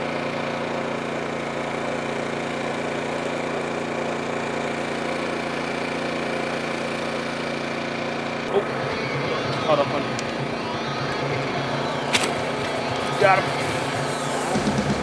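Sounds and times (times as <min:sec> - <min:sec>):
small boat engine humming: 0:00.0 - 0:15.0.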